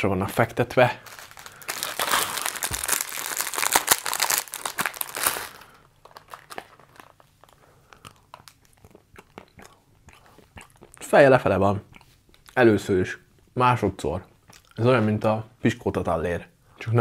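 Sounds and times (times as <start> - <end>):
wrapper crinkling: 1.0 - 8.8.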